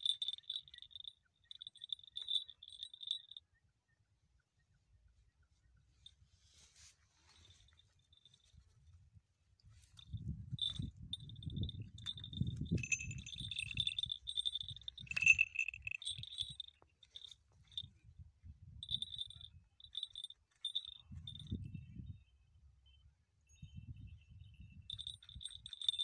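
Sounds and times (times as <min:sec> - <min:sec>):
small bell jingling: 0:00.0 - 0:03.4, 0:07.2 - 0:08.8, 0:09.7 - 0:18.0, 0:18.8 - 0:22.1, 0:23.6 - 0:26.0.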